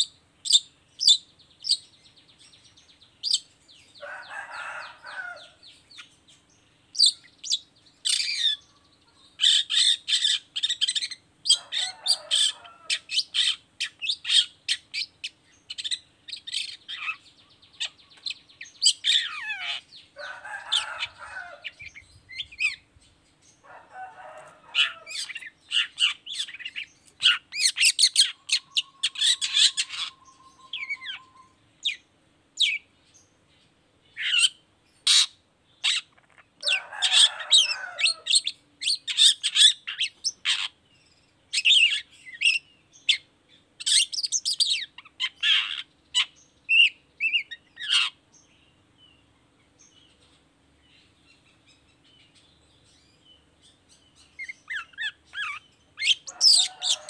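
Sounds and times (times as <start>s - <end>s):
shrike singing: 23.9s - 32.0s.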